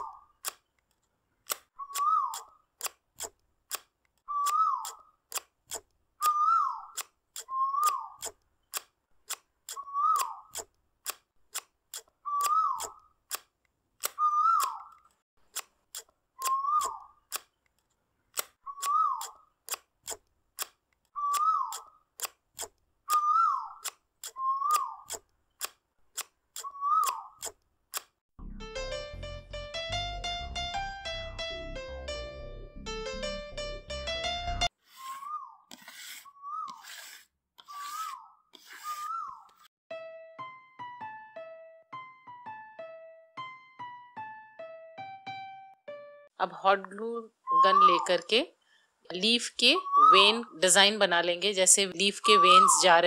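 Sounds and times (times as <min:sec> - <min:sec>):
scissors snipping paper: 0:01.5 - 0:17.5, 0:18.3 - 0:23.2, 0:23.8 - 0:28.2, 0:35.0 - 0:39.6
whistle-like squeak: 0:01.8 - 0:02.5, 0:07.4 - 0:08.1, 0:16.4 - 0:17.0, 0:24.3 - 0:25.0, 0:26.6 - 0:27.3, 0:35.0 - 0:35.6, 0:36.3 - 0:38.2, 0:38.8 - 0:39.5, 0:49.8 - 0:50.4, 0:52.2 - 0:53.0
piano music: 0:28.4 - 0:34.7, 0:39.9 - 0:46.3.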